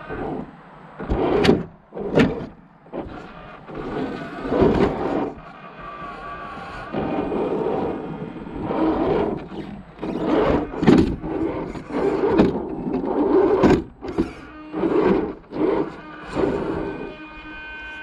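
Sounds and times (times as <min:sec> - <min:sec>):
toy car electric motor whining: 0:00.0 - 0:18.0.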